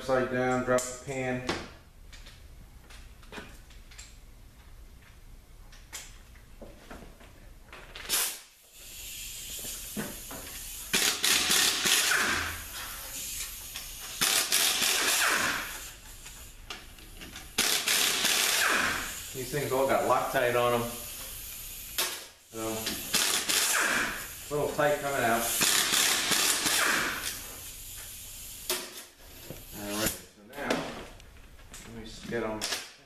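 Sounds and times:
tool and parts handling noise: 0:09.6 - 0:19.0
power ratchet whirring: 0:10.5 - 0:16.4, 0:17.3 - 0:19.3, 0:22.0 - 0:24.4, 0:25.5 - 0:27.4.

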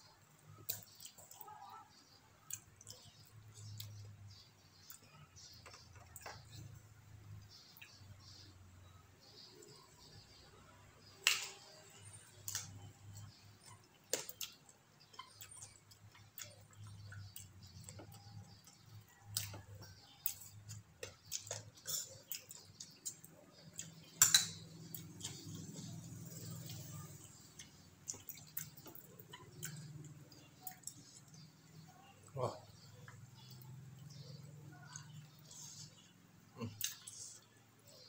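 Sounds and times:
chewing and lip smacking: 0:12.4 - 0:31.8, 0:33.0 - 0:38.0.

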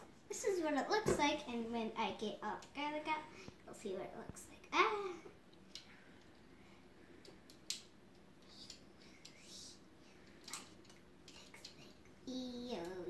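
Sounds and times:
faint clicks and soft scraping: 0:05.3 - 0:13.0.

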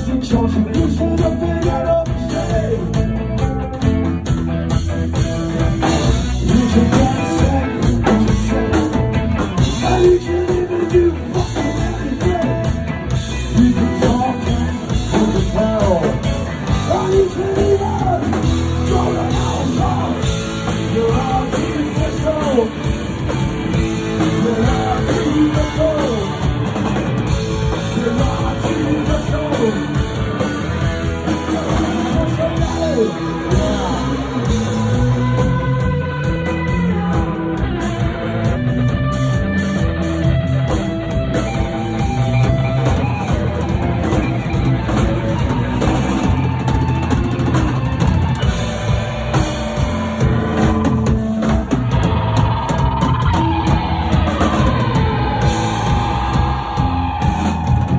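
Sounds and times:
man singing: 0:00.0 - 0:03.5, 0:06.0 - 0:26.7, 0:27.3 - 0:39.1
drum kit: 0:00.0 - 0:57.9
electric guitars: 0:00.0 - 0:57.9.

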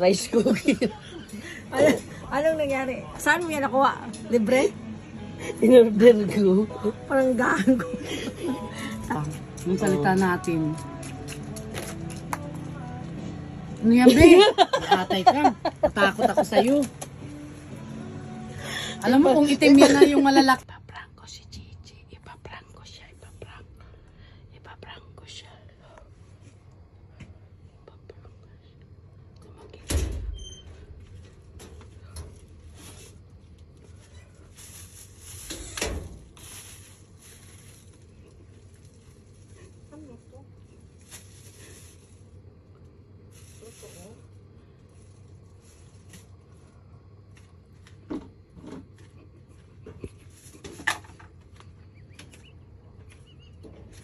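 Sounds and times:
faint room hum: 0:12.8 - 0:54.0
rustling and shuffling: 0:30.8 - 0:54.0.

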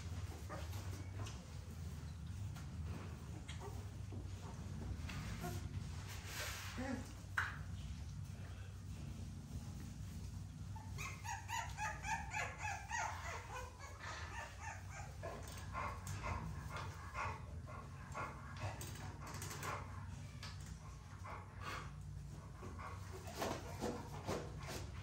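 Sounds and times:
steady low hum: 0:00.0 - 0:11.3
puppies whining and yipping: 0:10.6 - 0:15.9.

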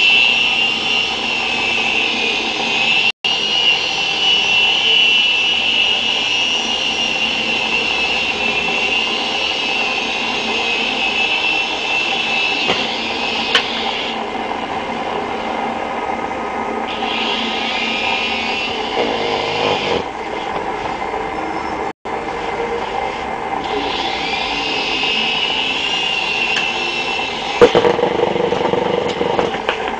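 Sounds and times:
rc helicopter whirring: 0:00.0 - 0:20.3, 0:23.4 - 0:29.9.

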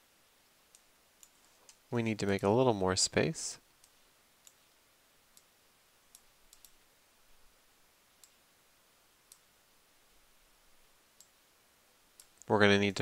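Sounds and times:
computer mouse clicks: 0:03.8 - 0:04.7, 0:06.1 - 0:06.8, 0:08.2 - 0:08.4, 0:09.2 - 0:09.5, 0:11.2 - 0:11.4, 0:12.2 - 0:12.5.

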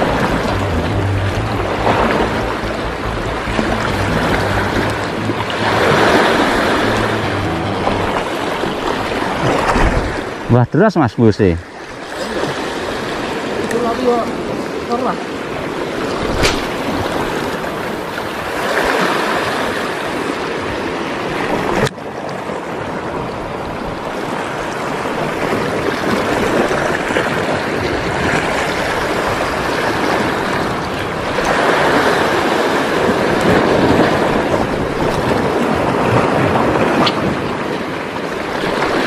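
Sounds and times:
surf washing against rocks: 0:11.4 - 0:39.0.

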